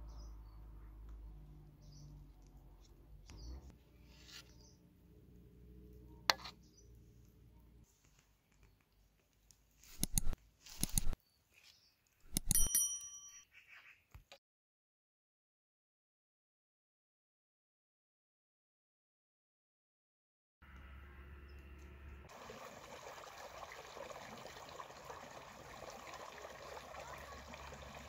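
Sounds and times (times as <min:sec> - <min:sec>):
faint outdoor background: 0:00.0 - 0:14.4, 0:20.6 - 0:28.0
sharp clink: 0:12.3 - 0:13.5
ringing bell ding: 0:12.4 - 0:13.4.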